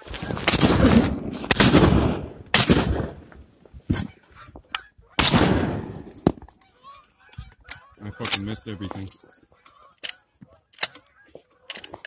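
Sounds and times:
shotgun blasts: 0:00.4 - 0:03.3, 0:05.2 - 0:06.3
geese honking: 0:03.9 - 0:05.4, 0:06.4 - 0:11.7.

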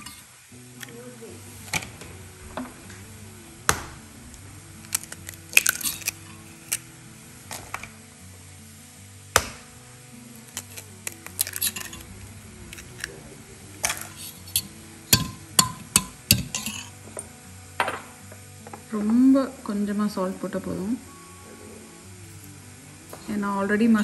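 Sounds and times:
eggs cracking on a steel bowl: 0:00.0 - 0:01.0, 0:04.8 - 0:06.9, 0:09.3 - 0:09.7, 0:10.4 - 0:13.2, 0:13.8 - 0:19.2
background music: 0:00.0 - 0:24.0.

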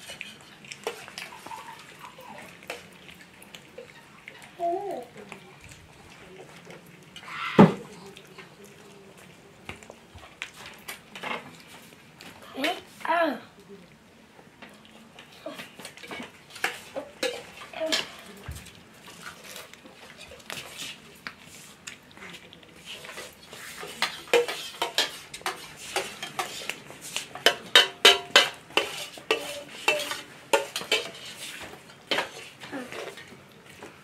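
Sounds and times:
utensils clinking against plates: 0:15.5 - 0:18.4, 0:23.0 - 0:33.3.

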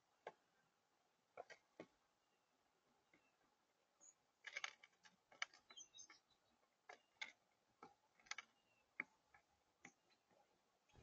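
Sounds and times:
beak pecking clicks and taps: 0:01.3 - 0:02.0, 0:04.4 - 0:10.4.

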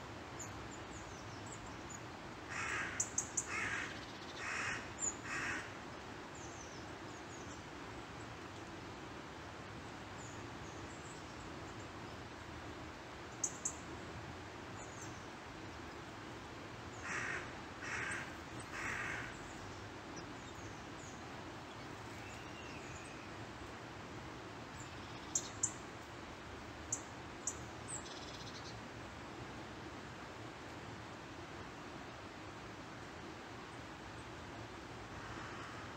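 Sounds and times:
woodland background hiss: 0:00.0 - 0:35.9
crow cawing: 0:02.5 - 0:05.7, 0:17.0 - 0:19.3, 0:35.2 - 0:35.9.

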